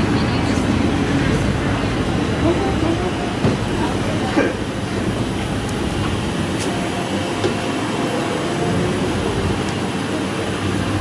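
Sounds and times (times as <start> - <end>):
low rumble of traffic: 0.0 - 11.0.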